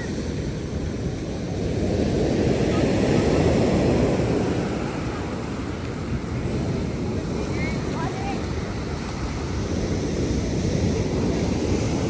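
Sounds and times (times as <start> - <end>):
ocean wave breaking: 0.0 - 12.0.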